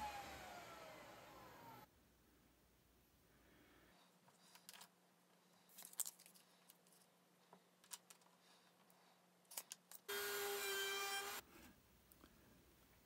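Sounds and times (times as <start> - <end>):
router whining: 0.0 - 1.9, 10.1 - 11.5.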